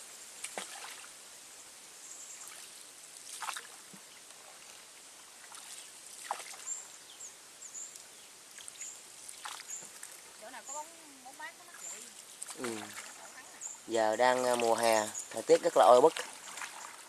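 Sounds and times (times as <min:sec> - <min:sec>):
faint water trickling: 0:00.0 - 0:17.0
paddle splashing in water: 0:00.4 - 0:01.1, 0:02.4 - 0:06.9, 0:08.5 - 0:10.5, 0:11.6 - 0:13.6, 0:14.2 - 0:17.0.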